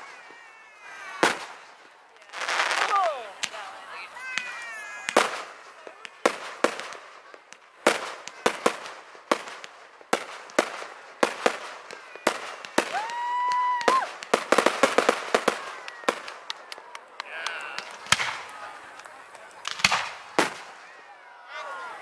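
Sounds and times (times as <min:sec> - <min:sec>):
fireworks bangs: 0:00.0 - 0:22.0
crackling pops: 0:04.3 - 0:20.9
firework whistle: 0:12.2 - 0:16.4.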